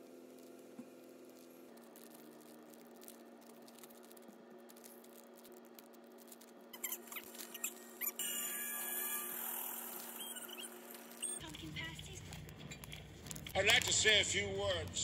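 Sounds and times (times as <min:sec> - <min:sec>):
plastic bags crinkling: 0:00.1 - 0:15.0.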